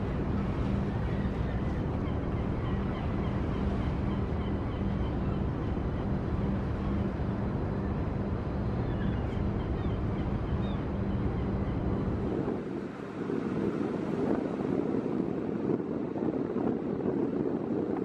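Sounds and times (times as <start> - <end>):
boat engine droning: 0.0 - 18.0
wind on microphone: 0.0 - 18.0.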